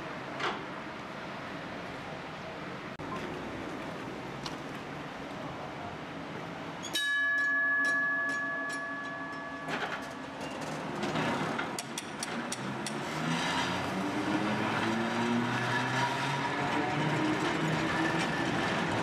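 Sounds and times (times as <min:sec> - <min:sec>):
tram bell ringing: 0:06.8 - 0:12.1
wheels clicking over rail joints: 0:06.8 - 0:14.0
tram motors whining: 0:08.0 - 0:19.0.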